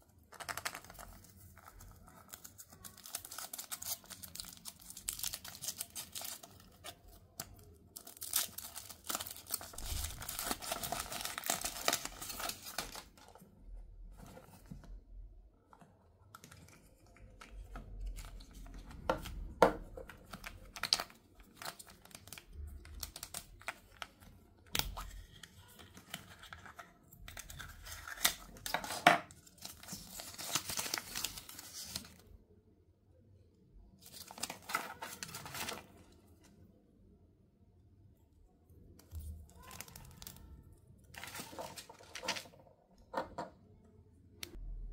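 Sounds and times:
wrappers tearing and crinkling: 2.1 - 13.1, 27.4 - 32.2, 34.0 - 36.0, 41.2 - 42.5.

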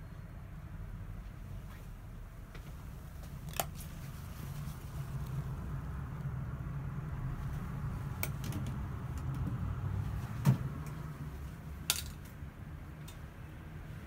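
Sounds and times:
low rumble: 4.2 - 11.8.

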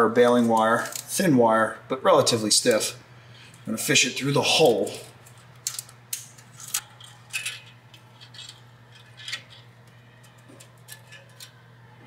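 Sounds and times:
steady low hum: 0.0 - 12.0
wire clicking and scraping on metal: 5.2 - 11.7.

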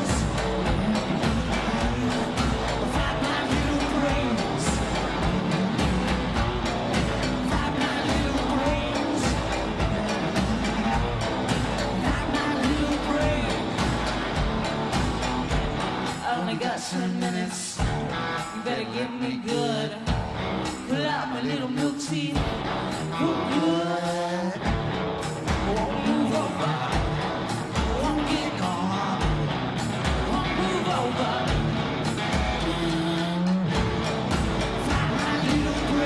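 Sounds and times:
low drum beat: 0.0 - 16.1, 33.7 - 36.0
electric guitar: 0.0 - 36.0.

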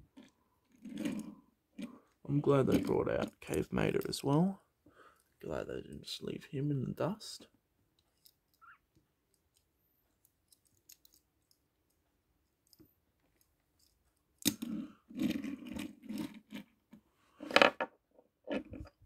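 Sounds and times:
toy cars knocking and scraping: 0.1 - 4.5, 12.6 - 19.0.

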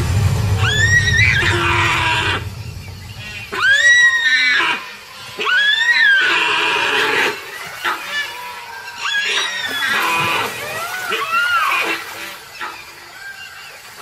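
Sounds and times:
water splashing: 0.0 - 14.0
deer distress screams: 3.4 - 13.8.

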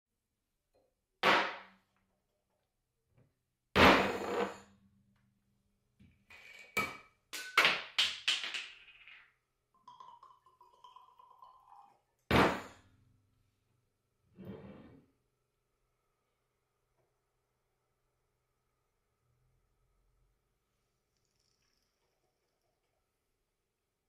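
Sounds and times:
glass clicks and clinks: 9.8 - 12.0
liquid trickling into a glass: 9.8 - 12.3.

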